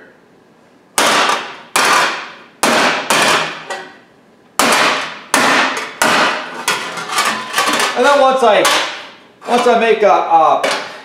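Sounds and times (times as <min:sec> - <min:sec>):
hammer clanging on sheet steel: 0:01.0 - 0:03.9, 0:04.6 - 0:09.8.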